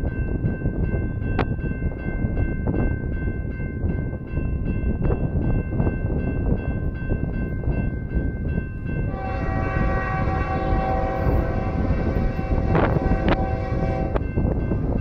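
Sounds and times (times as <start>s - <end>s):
crossing bell dinging: 0.0s - 15.0s
locomotive air horn: 9.1s - 14.2s.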